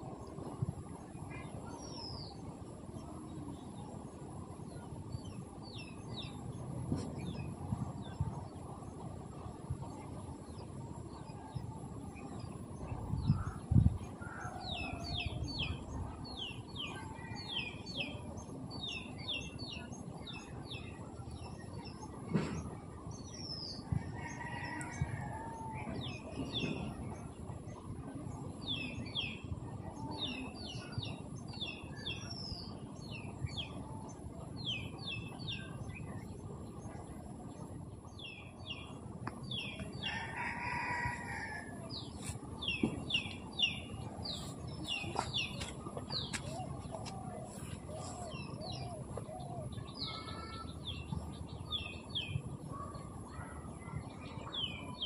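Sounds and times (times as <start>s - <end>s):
outdoor background noise: 0.0s - 55.0s
small birds chirping: 38.0s - 55.0s.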